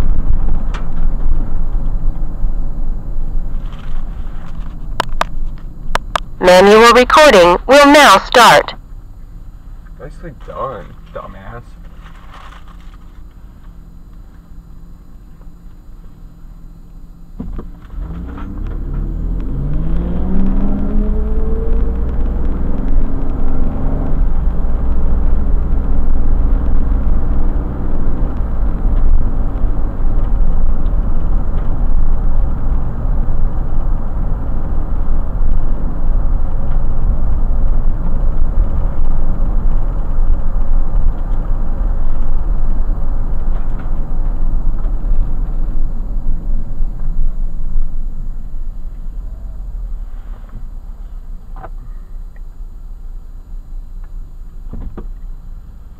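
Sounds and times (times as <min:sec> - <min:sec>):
road and tyre rumble: 0:00.0 - 0:55.9
car engine accelerating: 0:17.4 - 0:51.9.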